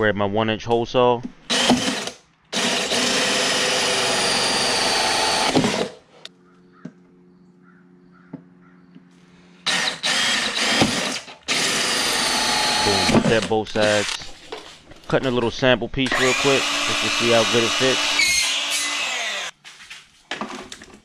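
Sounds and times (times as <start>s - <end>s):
drill hole saw grinding plastic: 1.5s - 6.0s, 9.7s - 14.3s, 16.0s - 19.5s.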